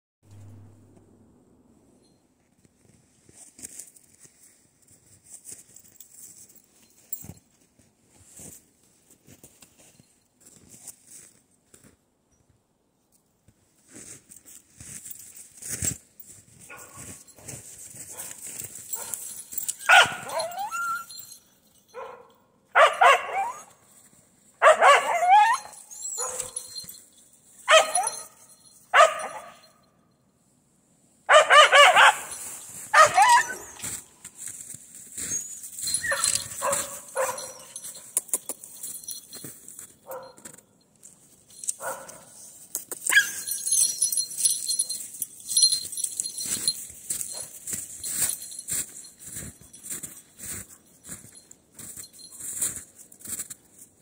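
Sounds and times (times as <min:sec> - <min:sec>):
dog barking and yelping: 0:19.8 - 0:21.3, 0:22.0 - 0:23.8, 0:24.6 - 0:26.7, 0:27.7 - 0:28.3, 0:28.9 - 0:29.6, 0:31.3 - 0:34.0, 0:35.2 - 0:38.0, 0:43.1 - 0:43.6.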